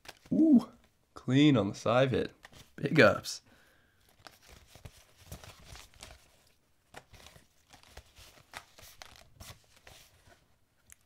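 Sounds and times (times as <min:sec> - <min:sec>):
paper sheets rustling: 0:04.1 - 0:10.5.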